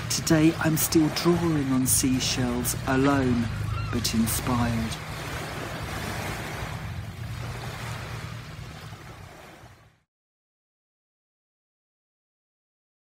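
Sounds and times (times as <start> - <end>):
sea surf washing in: 0.0 - 10.0.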